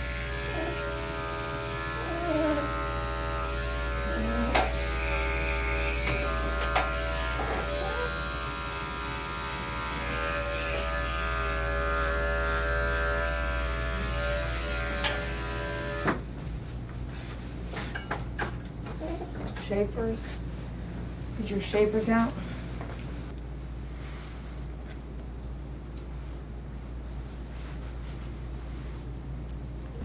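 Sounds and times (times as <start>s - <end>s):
electric clippers buzzing: 0.0s - 16.2s.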